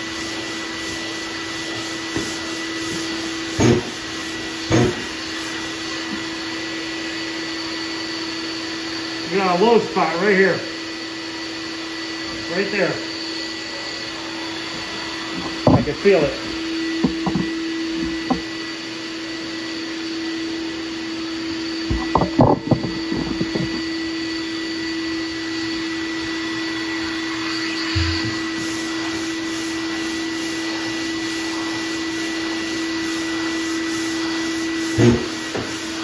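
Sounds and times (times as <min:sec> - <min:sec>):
dust extractor humming: 0:00.0 - 0:36.0
knocks: 0:17.0 - 0:17.5.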